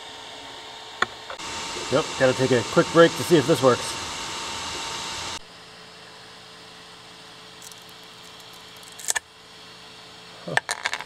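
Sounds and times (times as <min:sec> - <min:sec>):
three d printer whirring: 0:01.3 - 0:05.4.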